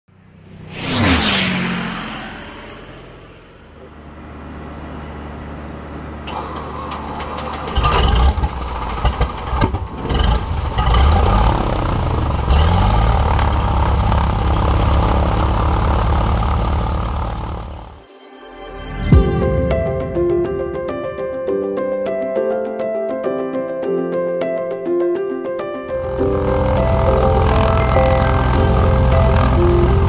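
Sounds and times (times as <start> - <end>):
aircraft engine starting and idling: 0.4 - 18.0, 25.9 - 30.0.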